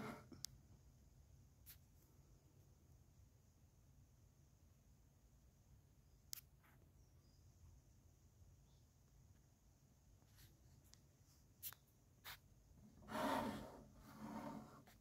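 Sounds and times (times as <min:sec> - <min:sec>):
plastic scraping across tabletop: 0:13.0 - 0:15.0.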